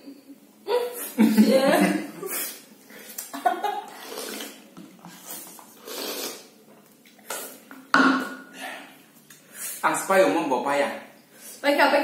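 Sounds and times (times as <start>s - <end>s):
slurping from a plate: 3.9s - 7.7s.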